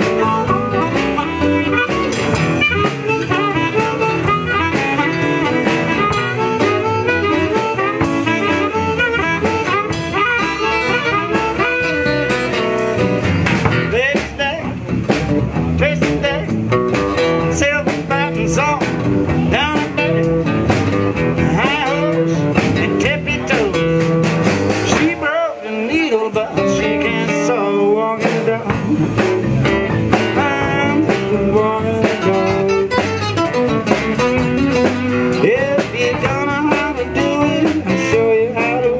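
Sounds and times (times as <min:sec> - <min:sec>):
acoustic guitars: 0:00.0 - 0:38.9
drum kit: 0:00.0 - 0:38.9
harmonica: 0:00.2 - 0:12.8.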